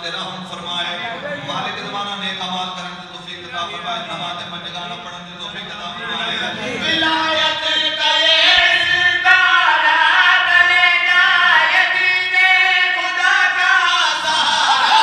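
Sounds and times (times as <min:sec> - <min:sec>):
man singing into a microphone: 0:06.5 - 0:15.0.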